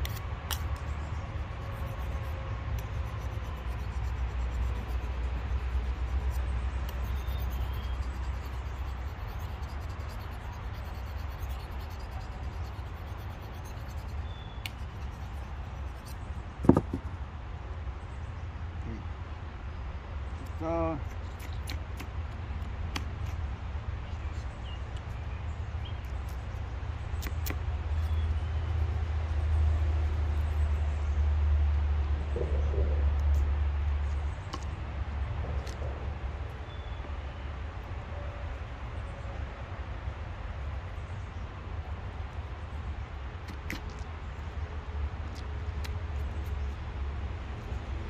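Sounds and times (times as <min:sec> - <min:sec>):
knife scraping fish scales: 0:00.0 - 0:16.2
steady low rumble: 0:00.0 - 0:48.0.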